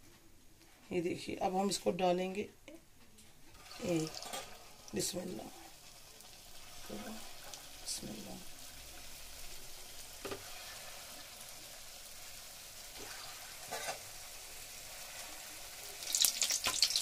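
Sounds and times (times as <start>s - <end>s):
dough balls deep-frying: 3.5s - 17.0s.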